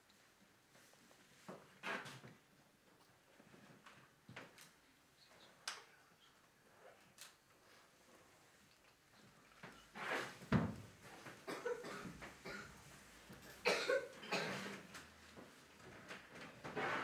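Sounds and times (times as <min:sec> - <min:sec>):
people coughing: 0:11.4 - 0:12.8, 0:13.5 - 0:14.8.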